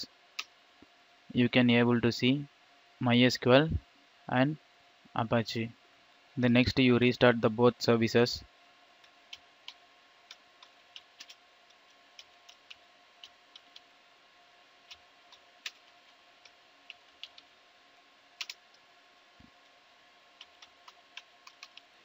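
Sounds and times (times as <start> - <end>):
faint steady hum: 0.0 - 22.0
keyboard keys clicking: 11.0 - 11.4, 18.4 - 18.6, 20.4 - 21.9.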